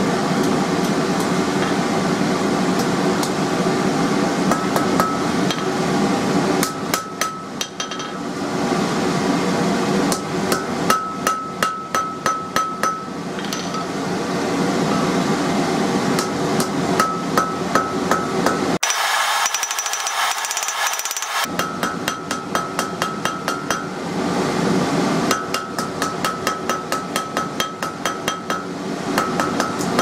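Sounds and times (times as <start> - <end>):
hammer striking steel on anvil: 4.5 - 5.8, 6.6 - 8.3, 10.1 - 14.0, 16.2 - 24.0, 25.3 - 30.0.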